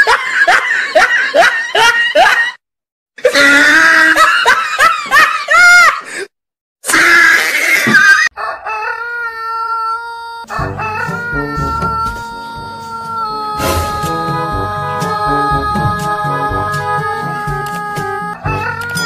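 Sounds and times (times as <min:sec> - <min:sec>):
woman shrieking and wailing: 0:03.2 - 0:04.5, 0:06.8 - 0:10.5
rooster crowing: 0:08.2 - 0:13.2, 0:18.4 - 0:19.0.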